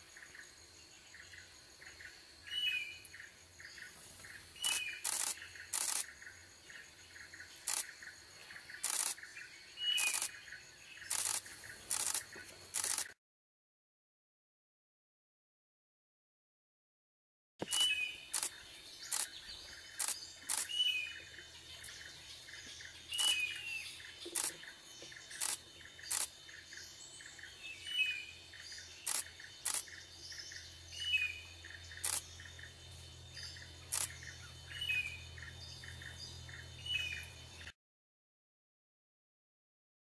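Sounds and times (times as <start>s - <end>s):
sharp clicks: 4.6s - 6.1s, 8.8s - 9.2s, 10.0s - 10.3s, 11.1s - 13.2s, 17.6s - 18.5s, 24.3s - 24.6s, 25.4s - 26.3s, 29.1s - 29.8s.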